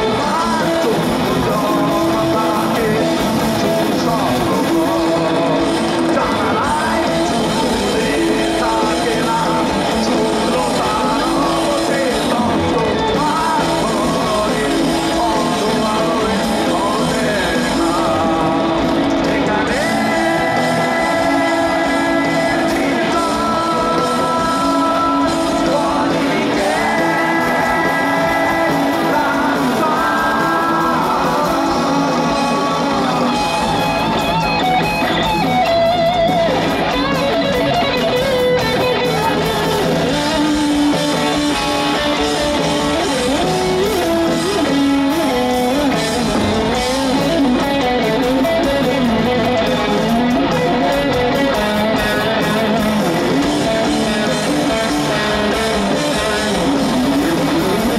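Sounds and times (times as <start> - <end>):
electric guitar lead melody: 0.0 - 57.9
heavy metal band playing live: 0.0 - 57.9
sung vocals: 0.0 - 57.9.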